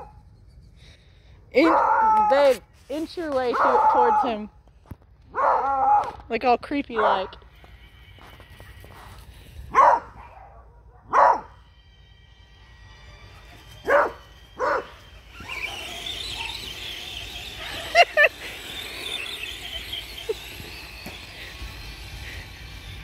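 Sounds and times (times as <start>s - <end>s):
dog barking: 3.5s - 4.3s, 5.3s - 6.1s, 7.0s - 7.3s, 9.7s - 11.6s, 13.9s - 14.9s.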